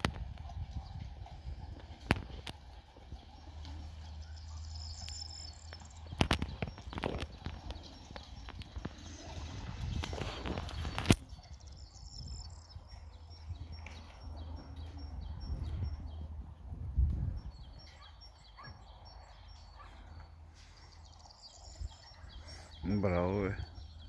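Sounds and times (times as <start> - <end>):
wind rumble on microphone: 0.0 - 3.9, 5.8 - 20.0.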